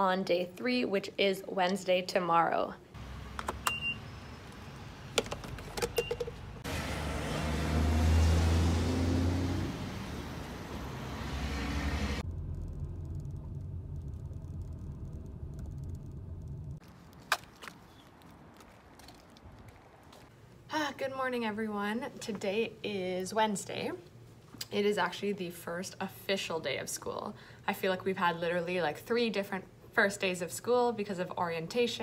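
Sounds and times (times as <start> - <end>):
vehicle engine hum: 3.0 - 20.3
low traffic rumble: 3.0 - 20.7.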